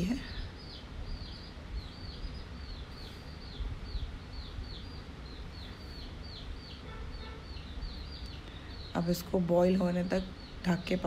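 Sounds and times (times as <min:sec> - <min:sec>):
steady low rumble: 0:00.0 - 0:06.8
small bird chirping: 0:00.0 - 0:11.0.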